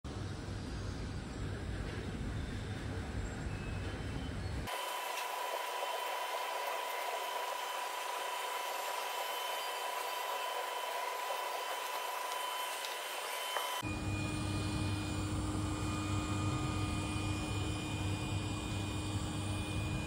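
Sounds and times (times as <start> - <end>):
robot vacuum cleaner hissing: 4.7 - 20.0.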